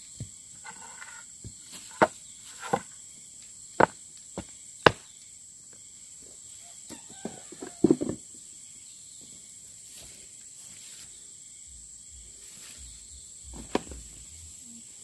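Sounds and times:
high-pitched insect drone: 0.0s - 15.0s
plastic stool knocking: 13.5s - 14.1s.

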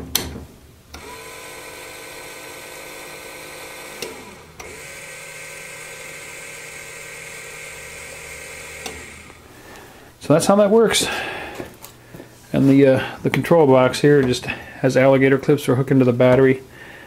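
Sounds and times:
motor stopping click: 0.9s - 9.4s
small gear motor whining: 0.9s - 9.6s.

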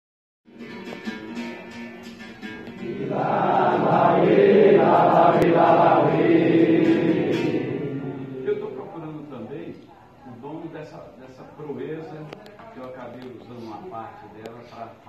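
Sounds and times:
musical accompaniment: 0.5s - 8.6s
voices singing: 2.7s - 8.9s.

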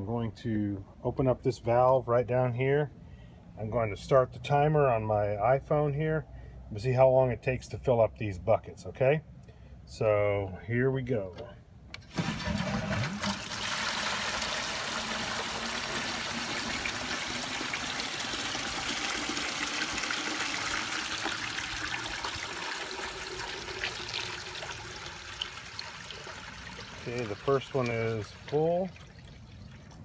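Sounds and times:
water pouring into buckets: 12.1s - 30.0s.

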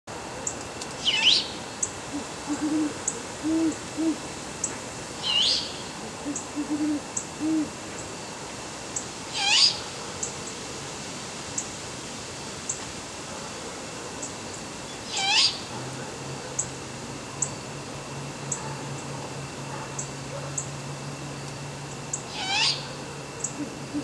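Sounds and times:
owls hooting deeply: 2.1s - 4.3s, 5.2s - 7.8s, 9.3s - 9.8s, 15.1s - 15.6s, 22.3s - 24.0s
high-pitched swooping calls: 9.3s - 9.8s, 22.3s - 24.0s.

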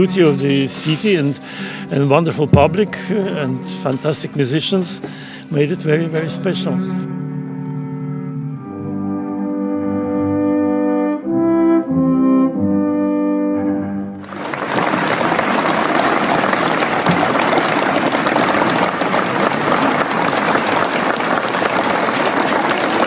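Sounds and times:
orchestra chords: 0.0s - 23.0s
audience applause: 14.2s - 23.0s.

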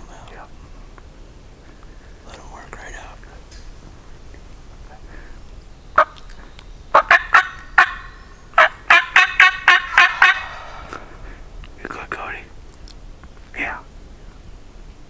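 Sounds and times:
wild turkey calling: 3.4s - 12.4s.

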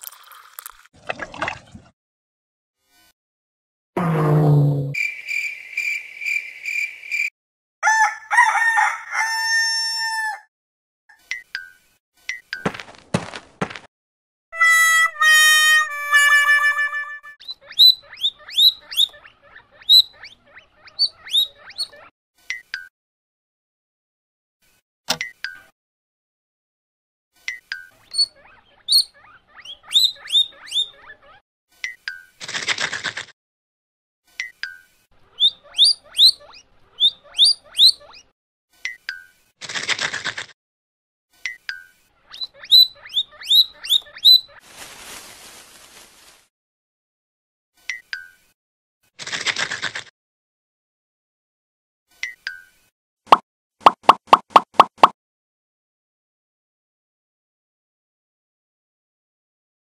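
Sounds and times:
short high blips: 4.0s - 5.0s
rooster crowing: 7.8s - 10.5s
guinea pig squealing: 14.6s - 22.1s, 27.9s - 31.4s, 35.2s - 38.3s, 42.2s - 44.6s.

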